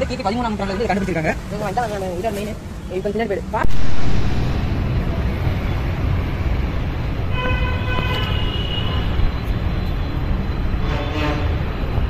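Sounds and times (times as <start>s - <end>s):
road traffic rumble: 0.0s - 12.0s
vehicle horn: 7.3s - 9.2s, 10.8s - 11.6s.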